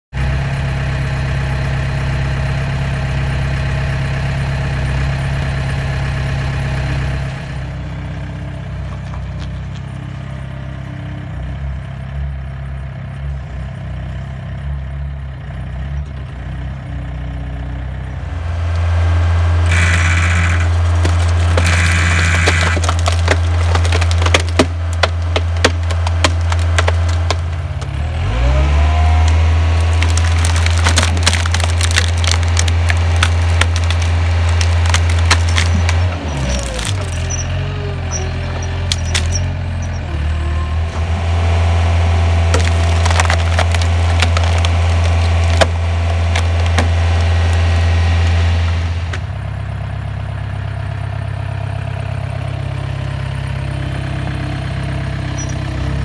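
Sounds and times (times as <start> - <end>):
loader engine running: 0.1 - 56.0
log splitter low drone: 0.1 - 56.0
wood cracking and splintering: 19.6 - 40.0, 40.9 - 49.4.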